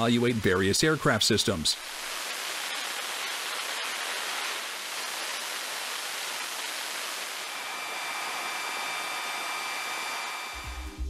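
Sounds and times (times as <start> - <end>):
high whine: 0.0 - 11.0
jet engine rushing: 0.0 - 11.0.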